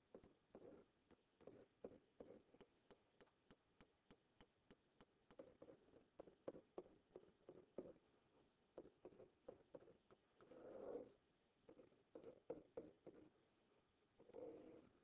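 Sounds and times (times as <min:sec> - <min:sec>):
stylus tapping and scratching: 0:00.1 - 0:08.0, 0:08.7 - 0:11.1, 0:11.7 - 0:13.3.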